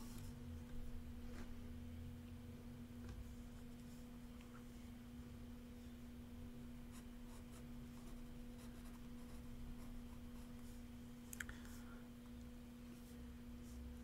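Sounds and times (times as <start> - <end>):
steady low hum: 0.0 - 14.0
pen scratching on paper: 6.9 - 10.6.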